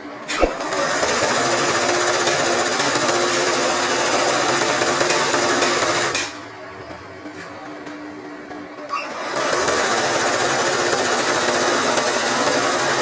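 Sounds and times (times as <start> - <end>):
sewing machine stitching: 0.3 - 6.4, 8.9 - 13.0.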